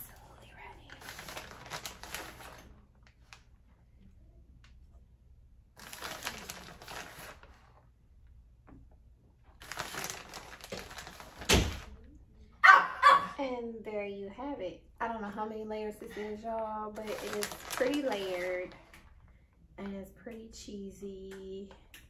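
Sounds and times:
packaging crinkling: 0:00.8 - 0:03.5, 0:05.8 - 0:07.7, 0:09.5 - 0:12.0, 0:16.9 - 0:19.1.

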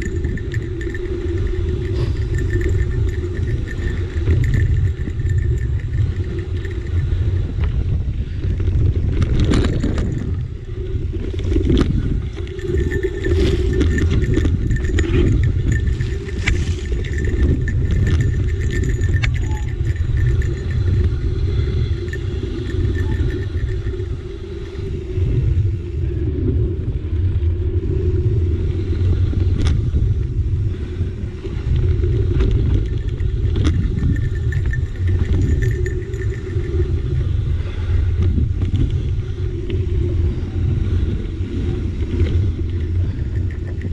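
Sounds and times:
bike rattles and knocks: 0:00.0 - 0:24.1, 0:31.8 - 0:37.2.

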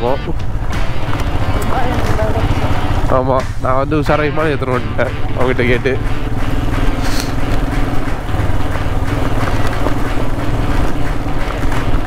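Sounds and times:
motorcycle engine running: 0:00.0 - 0:12.0
tyres on gravel: 0:04.3 - 0:12.0.

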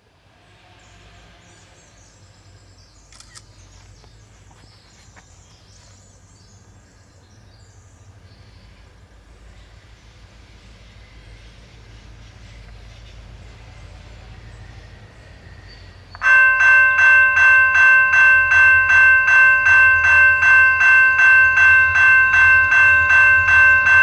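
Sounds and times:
sharp click: 0:03.1 - 0:03.5.

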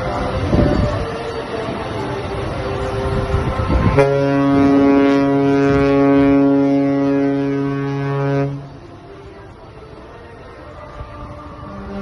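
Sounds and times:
sea: 0:00.0 - 0:12.0
wind: 0:00.0 - 0:12.0
ship's horn blast: 0:02.4 - 0:09.5, 0:11.6 - 0:12.0.

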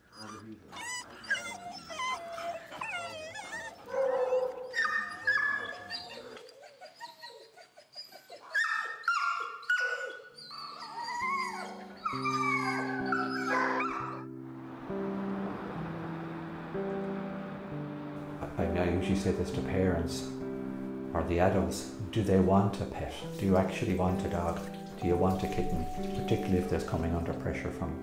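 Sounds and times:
dogs barking and whining: 0:00.0 - 0:14.3
sustained music chords: 0:11.8 - 0:28.0.

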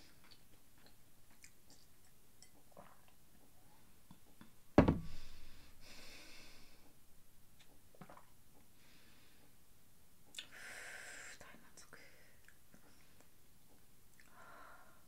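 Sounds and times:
glass set down on cloth table: 0:04.8 - 0:05.3
soft breath out: 0:05.0 - 0:07.0.

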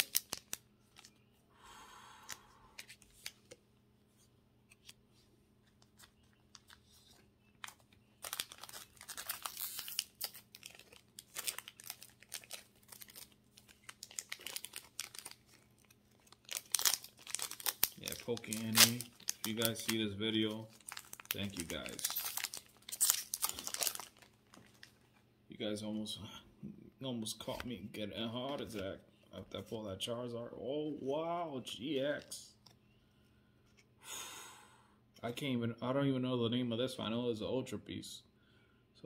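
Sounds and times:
foil wrapper crinkling and tearing: 0:00.0 - 0:01.2, 0:06.0 - 0:25.2.

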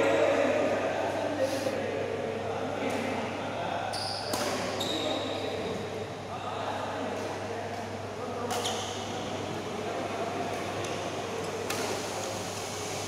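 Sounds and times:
steady hall hum: 0:00.0 - 0:13.0
racket hitting shuttlecock: 0:04.3 - 0:04.7, 0:08.5 - 0:08.8.

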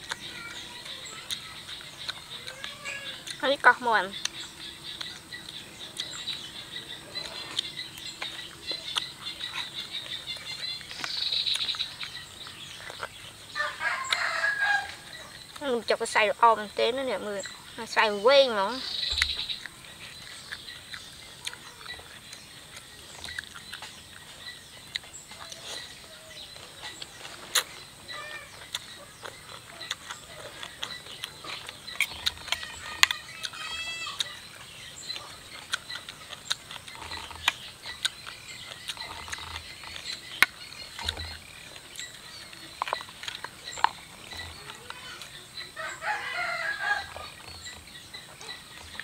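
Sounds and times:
chewing: 0:00.0 - 0:49.0
lip smacks: 0:00.9 - 0:03.4, 0:26.8 - 0:27.8, 0:28.6 - 0:33.6.

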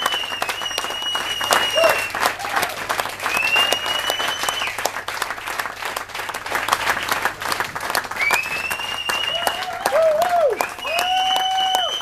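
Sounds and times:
long high whistle: 0:00.0 - 0:02.3, 0:03.3 - 0:04.8, 0:08.2 - 0:12.0
audience applauding: 0:00.0 - 0:12.0.

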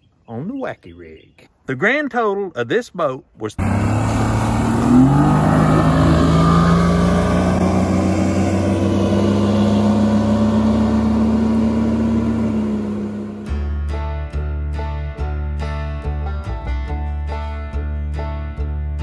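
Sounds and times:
outboard motor accelerating: 0:03.6 - 0:13.6.

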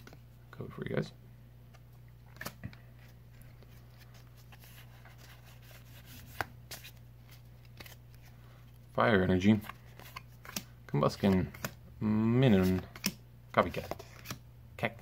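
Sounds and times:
steady low hum: 0:00.0 - 0:15.0
cards clicking and flicking: 0:02.3 - 0:02.8, 0:09.5 - 0:11.8, 0:12.5 - 0:14.4.

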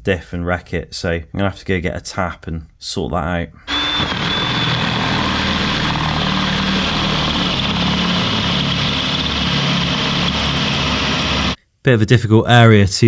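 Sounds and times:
cordless drill boring metal: 0:03.7 - 0:11.6.

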